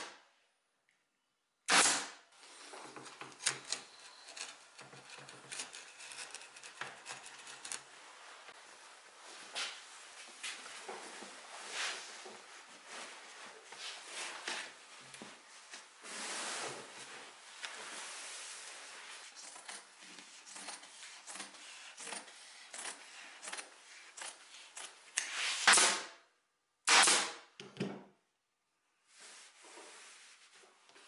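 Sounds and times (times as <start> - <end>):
fabric rustling and rubbing: 7.4 - 21.8, 29.1 - 30.9.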